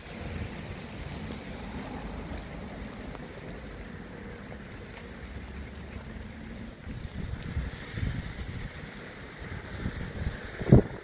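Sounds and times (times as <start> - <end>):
heavy rain hissing: 0.0 - 11.0
wind buffeting microphone: 6.8 - 11.0.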